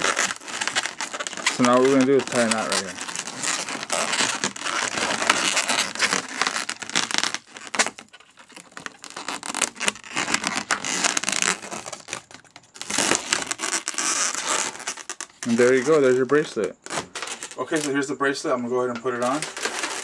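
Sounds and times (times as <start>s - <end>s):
balloons rubbing and scratching: 0.0s - 20.0s.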